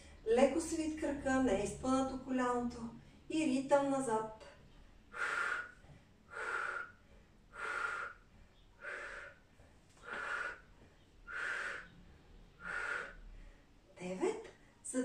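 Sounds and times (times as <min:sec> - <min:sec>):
woman exhaling hard: 0:05.1 - 0:08.2, 0:08.8 - 0:09.4, 0:10.0 - 0:10.6, 0:11.3 - 0:12.0, 0:12.6 - 0:13.2.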